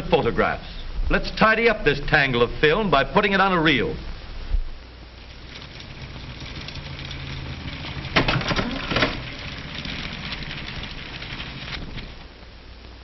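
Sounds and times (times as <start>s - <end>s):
film reel whirring rattle: 5.1s - 12.6s.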